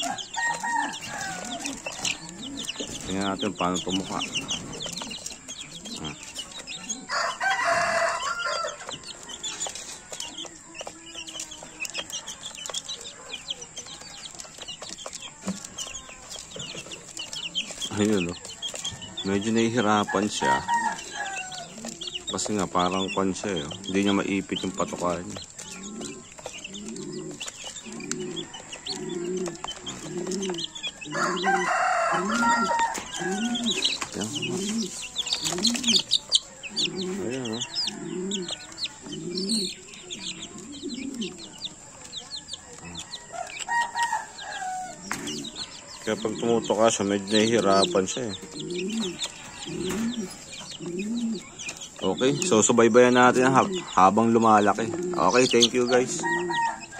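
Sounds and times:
rooster crowing: 0:00.0 - 0:02.3, 0:07.0 - 0:09.2, 0:20.0 - 0:21.8, 0:30.6 - 0:34.0, 0:36.8 - 0:39.7, 0:42.6 - 0:46.4, 0:55.8 - 0:56.9
beaks pecking at feed: 0:00.0 - 0:56.9
chicken clucking: 0:00.0 - 0:56.9
chicks peeping: 0:00.0 - 0:56.9.

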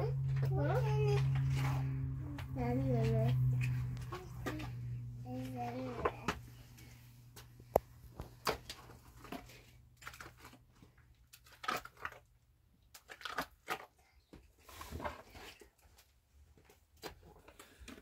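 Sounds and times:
faint low hum: 0:00.0 - 0:13.0
wet plaster squelching and slapping: 0:12.8 - 0:14.0.

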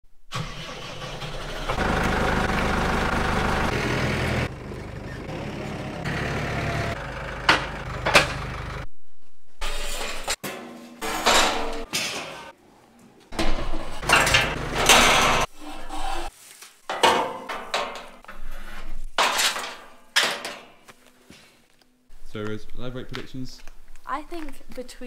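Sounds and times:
vehicle engine running: 0:01.3 - 0:08.9, 0:14.0 - 0:15.5
sharp knocks and rattles: 0:13.3 - 0:15.5, 0:16.9 - 0:20.8.

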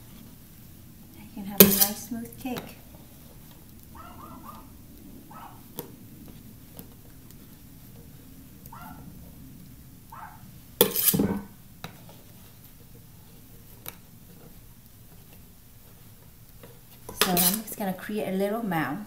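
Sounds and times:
metal spatula scraping: 0:01.6 - 0:02.6, 0:10.8 - 0:11.6, 0:17.0 - 0:17.8.

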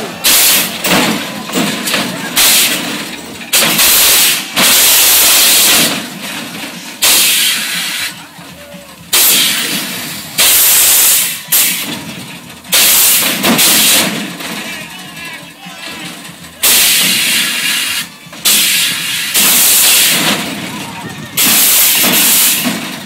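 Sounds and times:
air suspension hissing blasts: 0:00.2 - 0:01.8, 0:02.4 - 0:06.2, 0:07.0 - 0:08.2, 0:09.1 - 0:12.0, 0:12.7 - 0:14.4, 0:16.6 - 0:20.7, 0:21.4 - 0:23.0.

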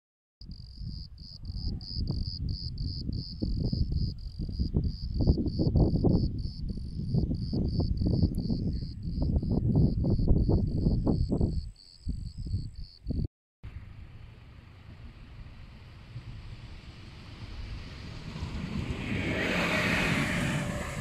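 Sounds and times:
insect chirping: 0:00.5 - 0:13.2
wind buffeting microphone: 0:00.5 - 0:21.0.

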